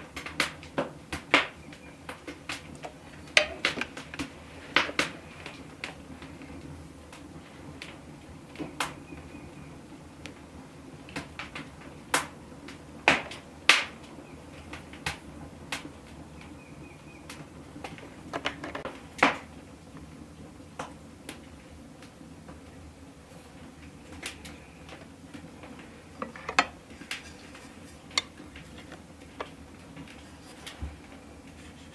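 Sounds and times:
hands handling pastry: 23.4s - 31.9s.

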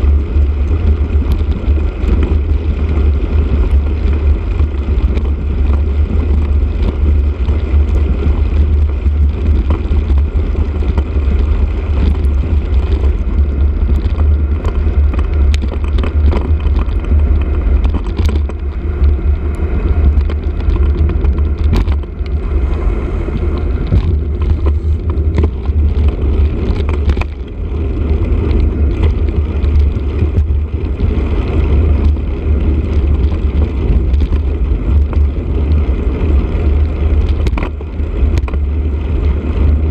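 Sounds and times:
bicycle tyre and frame rumble: 0.0s - 39.9s
small clicks and rattles: 0.0s - 39.9s
wind buffeting microphone: 0.0s - 39.9s.

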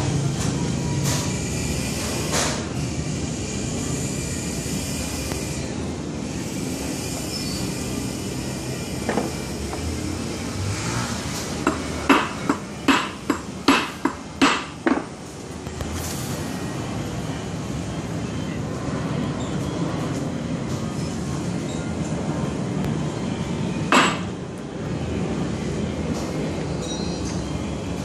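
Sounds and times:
fabrication shop background noise: 0.0s - 28.0s
hammer striking metal: 11.6s - 15.1s, 23.9s - 24.3s.

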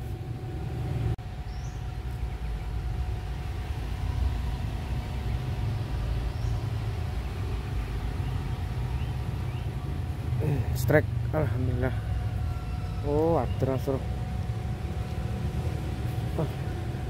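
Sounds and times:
low outdoor rumble: 0.0s - 17.0s.

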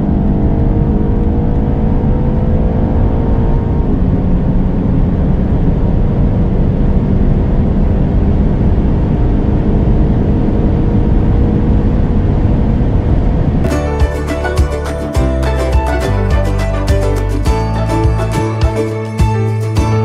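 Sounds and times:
car engine at full throttle: 0.0s - 13.7s
wind and road noise: 0.0s - 14.1s.

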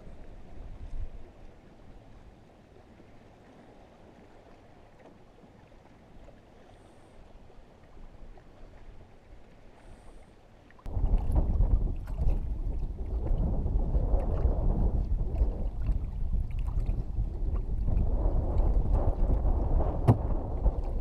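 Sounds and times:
faint wind: 0.0s - 21.0s
water noise: 0.0s - 21.0s
wind buffeting microphone: 10.9s - 21.0s.

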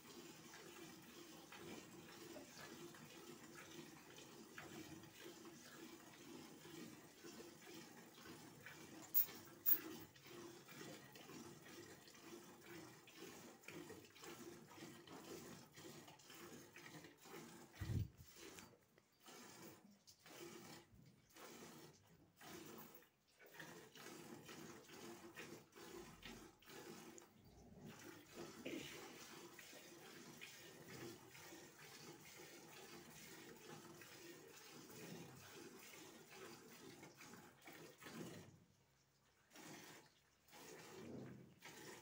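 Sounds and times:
milk squirting into metal bucket: 0.0s - 42.0s.

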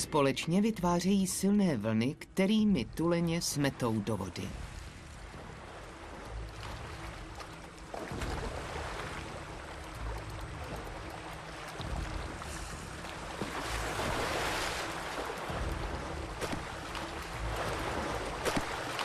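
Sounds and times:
sea water splashing: 3.0s - 19.0s.

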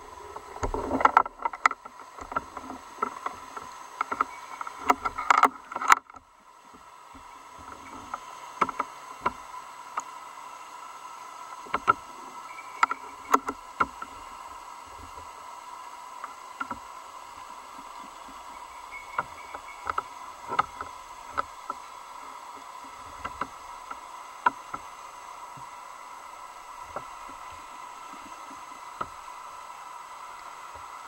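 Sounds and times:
electronic hum: 0.0s - 31.0s
sharp clicks and knocks: 0.3s - 9.4s, 11.6s - 14.2s, 16.2s - 16.9s, 17.7s - 24.9s.

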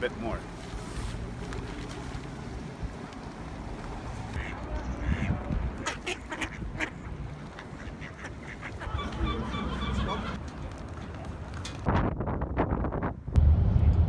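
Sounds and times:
low wind rumble on microphone: 3.9s - 7.6s, 11.8s - 14.0s
ducks quacking: 4.3s - 10.4s.

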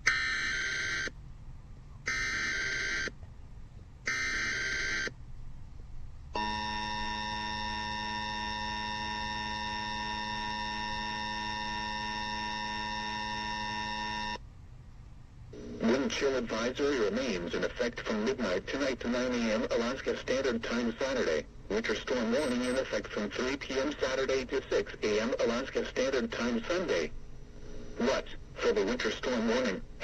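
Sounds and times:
steady warning alarm tone: 0.0s - 1.2s, 2.1s - 3.2s, 4.1s - 5.2s, 6.4s - 14.4s, 18.4s - 25.9s
digital header data bursts: 22.1s - 23.0s.

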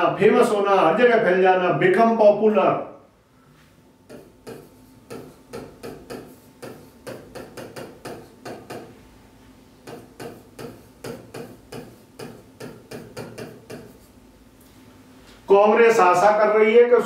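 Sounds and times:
pen tapping and scraping on screen: 4.1s - 9.0s, 9.8s - 14.2s.

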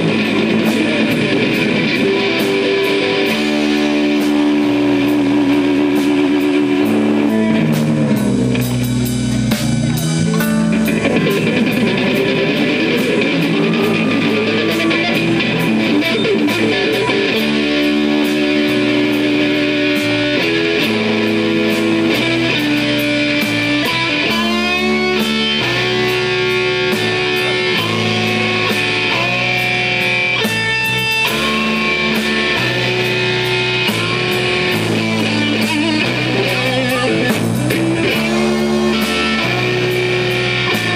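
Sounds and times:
bass guitar: 0.0s - 40.9s
drum kit: 0.0s - 40.9s
electric guitar long notes: 0.0s - 40.9s.

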